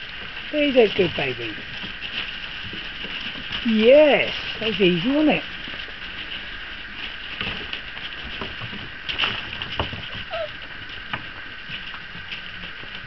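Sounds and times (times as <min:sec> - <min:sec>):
puppy paws pattering on gravel: 0:00.0 - 0:13.0
puppy squeak: 0:10.3 - 0:10.6.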